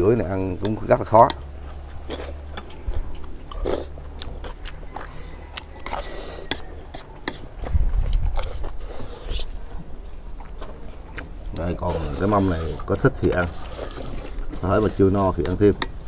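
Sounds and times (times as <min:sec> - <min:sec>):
chewing: 0:00.4 - 0:16.0
metal spoons scraping platters: 0:05.2 - 0:07.5, 0:11.7 - 0:16.0
low rumble: 0:07.5 - 0:10.5.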